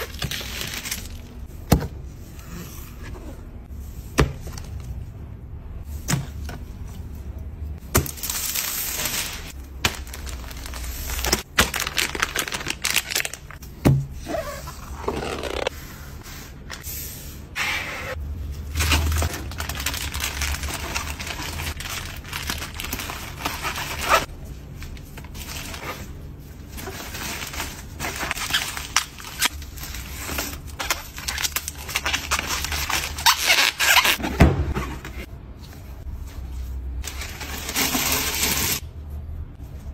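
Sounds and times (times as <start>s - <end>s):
plastic bags crinkling: 0.0s - 1.4s, 8.0s - 13.6s, 18.7s - 24.3s, 26.6s - 34.2s.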